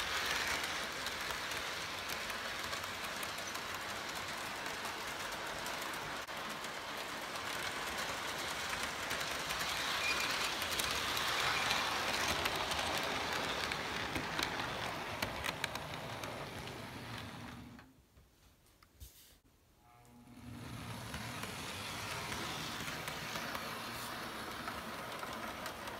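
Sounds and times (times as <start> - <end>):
model train wheels whirring: 0.0 - 17.9, 20.3 - 25.9
wheels clicking over rail joints: 0.0 - 17.9.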